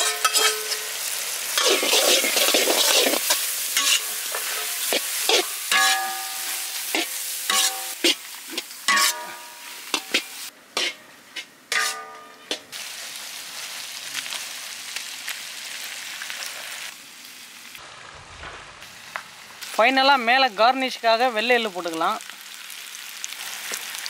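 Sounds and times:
metal ladle scraping a wok: 0.0s - 1.0s, 1.6s - 12.7s
fish sizzling in a wok: 0.0s - 24.0s.

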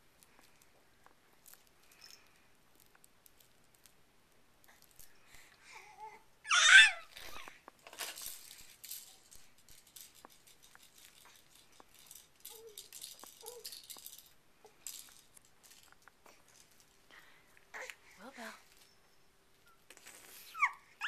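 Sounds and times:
baby vocal sounds: 5.7s - 7.5s.

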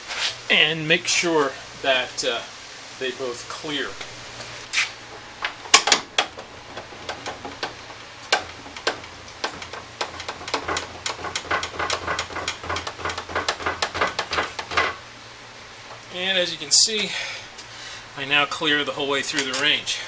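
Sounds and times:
table saw crank clicking: 5.7s - 15.0s.

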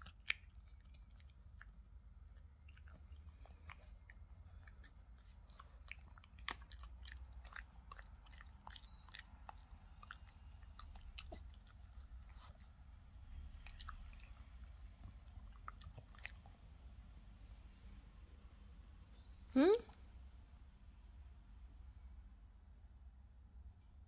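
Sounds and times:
dog chewing a stick: 0.0s - 16.6s.

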